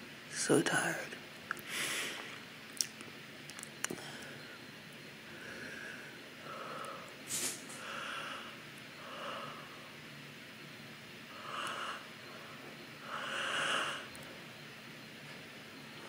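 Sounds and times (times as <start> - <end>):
sharp sniff: 7.3 - 7.8.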